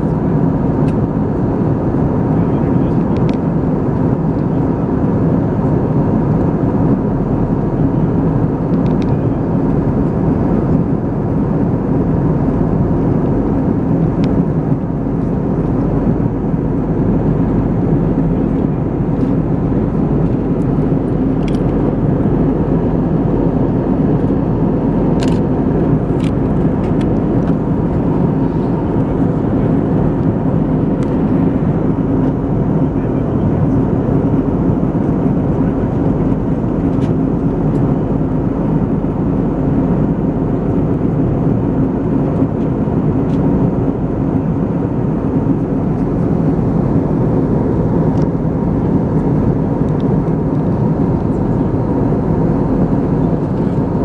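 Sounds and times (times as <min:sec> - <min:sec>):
airplane cabin engine noise: 0:00.0 - 0:54.0.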